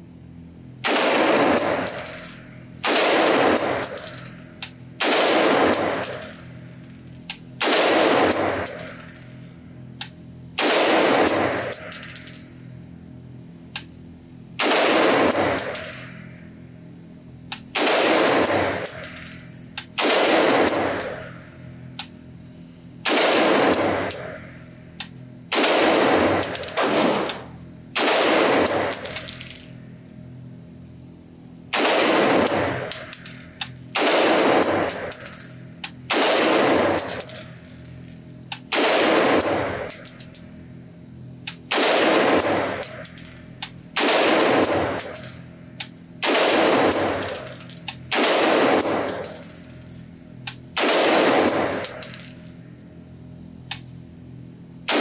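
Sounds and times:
rifle shots echoing indoors: 0.8s - 4.4s, 5.0s - 7.0s, 7.6s - 9.4s, 10.6s - 12.3s, 14.6s - 16.4s, 17.7s - 21.6s, 23.0s - 24.8s, 25.5s - 29.7s, 31.7s - 37.7s, 38.7s - 40.6s, 41.7s - 45.4s, 46.2s - 49.8s, 50.8s - 52.3s.

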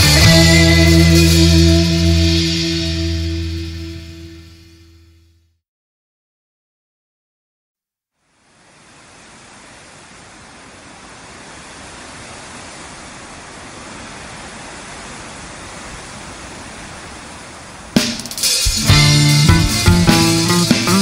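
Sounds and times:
rock band playing: 0.0s - 4.5s, 18.0s - 21.0s
rushing static-like noise: 8.3s - 21.0s.

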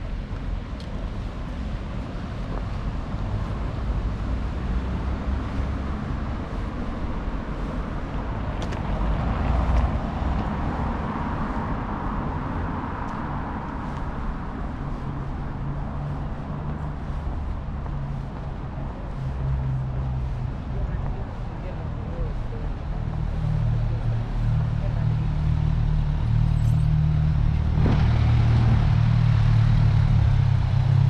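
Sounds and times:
traffic rumble: 0.0s - 31.0s
car passing close: 2.7s - 31.0s.

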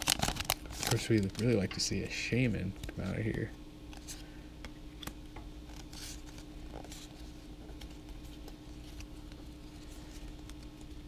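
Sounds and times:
faint steady hum: 0.0s - 11.0s
cards sliding: 5.7s - 7.2s.

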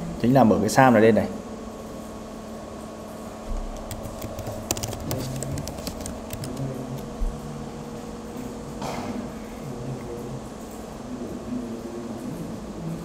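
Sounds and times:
keyboard typing: 3.6s - 7.2s.

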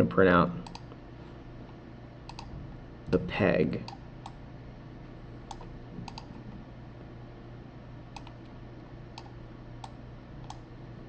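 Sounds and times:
low steady hum: 0.0s - 11.0s
computer mouse clicking: 0.6s - 1.0s, 2.3s - 2.5s, 5.5s - 6.4s, 8.1s - 8.6s, 9.2s - 10.7s.

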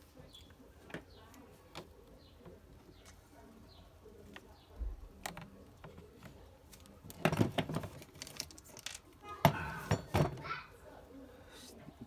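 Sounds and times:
clicks and knocks of plastic parts: 4.2s - 10.5s.

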